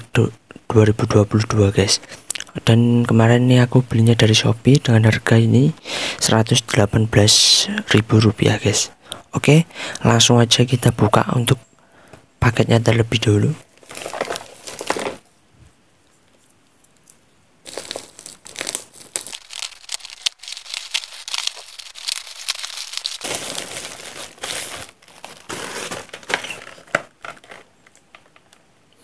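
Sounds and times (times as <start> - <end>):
plastic bag crinkling and tearing: 13.7 - 15.3, 17.6 - 28.2.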